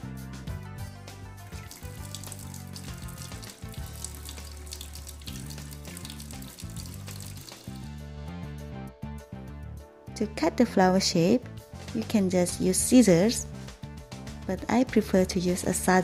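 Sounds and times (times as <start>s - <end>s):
background music: 0.0s - 16.0s
tap water running over fabric: 1.5s - 7.9s.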